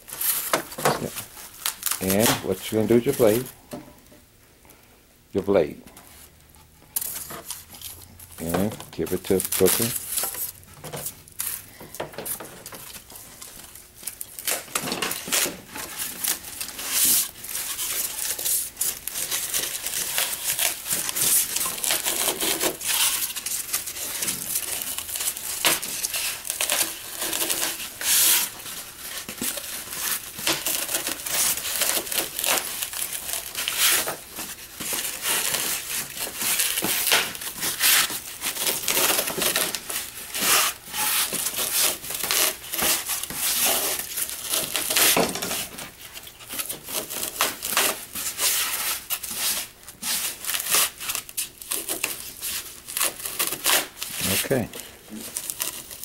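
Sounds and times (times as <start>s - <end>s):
box cutter sawing foam: 15.2s - 28.6s.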